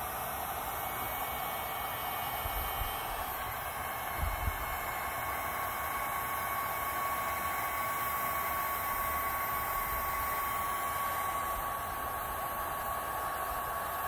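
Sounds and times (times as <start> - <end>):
heat gun blowing air: 0.0 - 14.0
motor high hum: 0.0 - 14.0.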